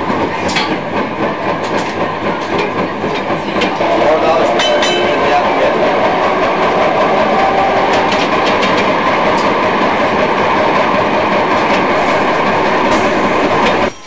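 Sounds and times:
clicks over track: 0.0 - 13.9
tram wheels rumbling on rails: 0.0 - 14.0.

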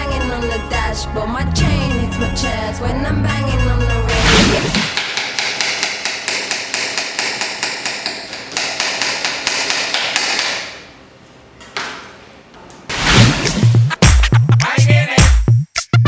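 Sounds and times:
knife chopping on cutting board: 4.7 - 10.6.

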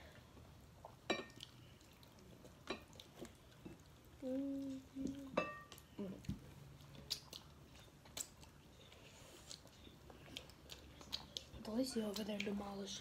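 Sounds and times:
person humming mm: 4.2 - 5.4.

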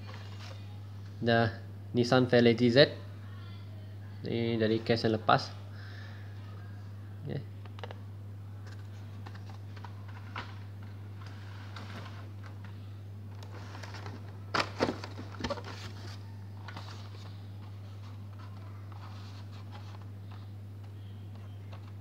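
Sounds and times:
steady low hum: 0.0 - 22.0
plastic blisters and card rustling: 8.6 - 22.0.

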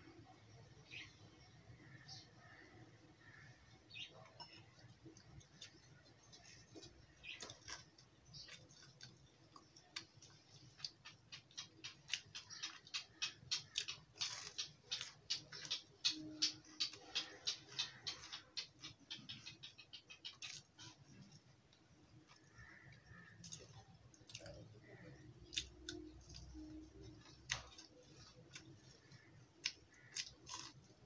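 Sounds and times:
person chewing crunchy food: 4.4 - 18.9, 20.3 - 21.5, 22.2 - 31.0.

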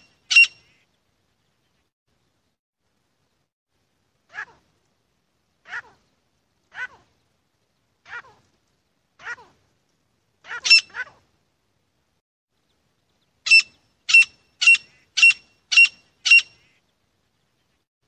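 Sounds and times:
francolin calling: 0.0 - 0.8, 13.4 - 16.8.

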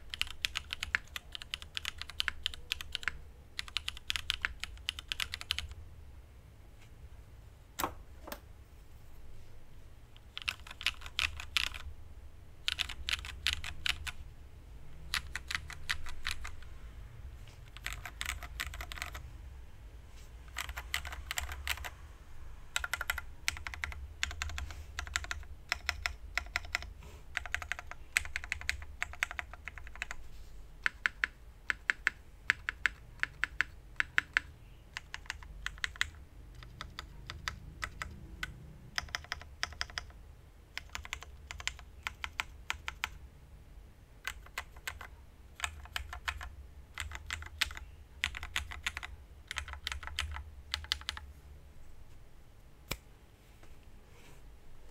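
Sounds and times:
mechanical keyboard key clacks: 30.8 - 40.1.

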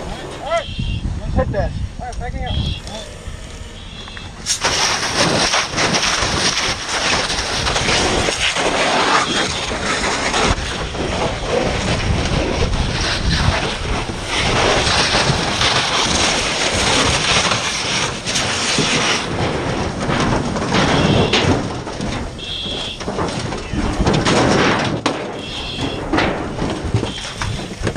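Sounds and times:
fire hose water rushing hiss: 4.4 - 19.3.

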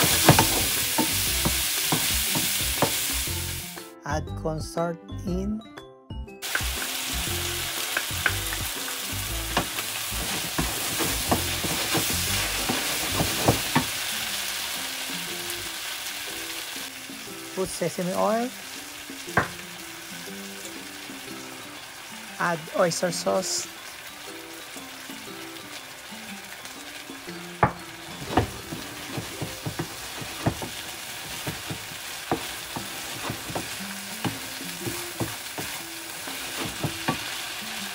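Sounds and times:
wooden spatula scraping a pan: 0.0 - 3.0, 9.6 - 14.0, 28.0 - 37.4
food sizzling in a frying pan: 0.0 - 3.8, 6.4 - 37.9
spatula knocking against pan: 27.6 - 35.8, 36.6 - 37.3.

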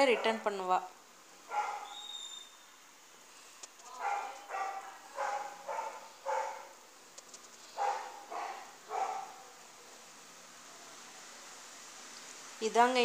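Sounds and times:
dog barking: 1.5 - 2.0, 3.9 - 6.8, 7.8 - 9.6.

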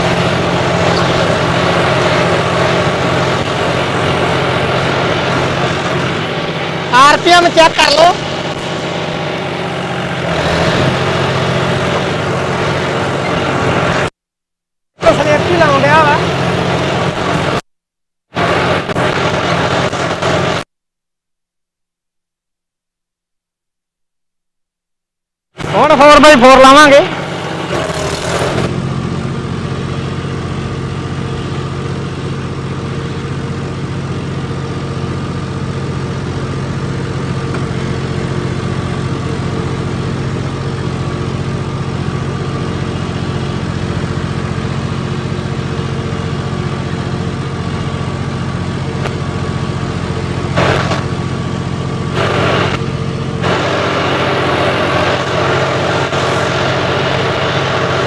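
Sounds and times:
tractor diesel engine running: 0.0 - 14.1, 15.0 - 17.7, 18.3 - 20.7, 25.6 - 58.0
loud hiss: 52.1 - 52.8, 53.4 - 58.0.

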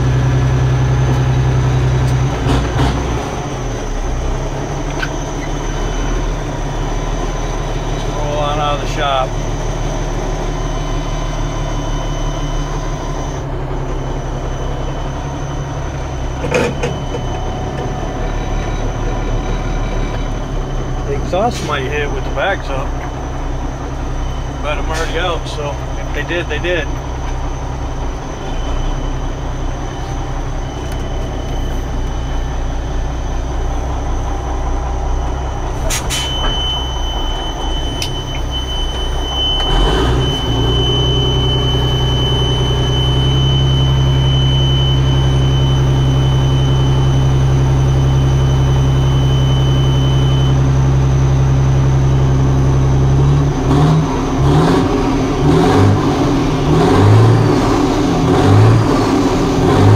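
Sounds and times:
diesel truck engine running: 0.0 - 59.9
click: 38.0 - 38.4.

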